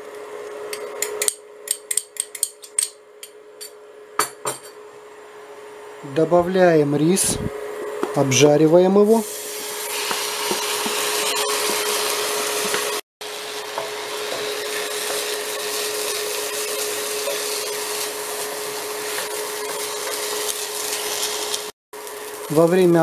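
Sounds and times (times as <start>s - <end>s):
rice sizzling in a pan: 9.1s - 23.0s.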